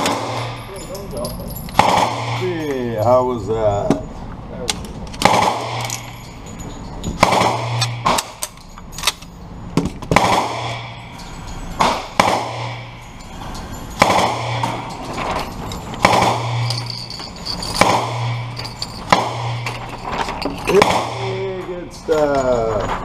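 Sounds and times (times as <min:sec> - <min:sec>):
gunshots with echo: 0:00.0 - 0:00.6, 0:01.8 - 0:02.7, 0:05.2 - 0:06.1, 0:07.2 - 0:08.4, 0:10.1 - 0:11.1, 0:11.8 - 0:13.2, 0:13.9 - 0:15.2, 0:16.0 - 0:16.8, 0:17.7 - 0:19.7, 0:20.7 - 0:21.5.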